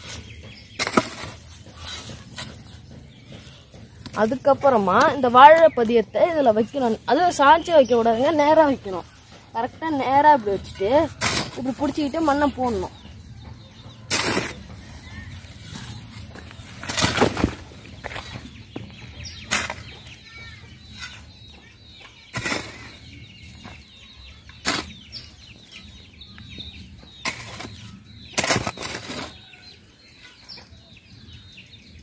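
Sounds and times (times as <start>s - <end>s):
hoe scraping and chopping soil: 0.0s - 12.9s, 13.8s - 20.2s, 22.3s - 23.9s, 24.5s - 25.5s, 27.1s - 30.6s
birds calling: 0.0s - 32.0s.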